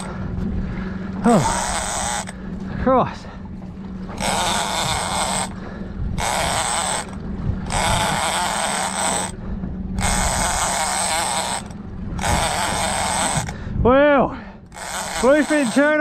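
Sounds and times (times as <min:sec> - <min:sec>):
fishing reel rasping: 0:01.3 - 0:02.4, 0:04.2 - 0:05.6, 0:06.2 - 0:09.4, 0:10.0 - 0:13.6, 0:14.7 - 0:16.0.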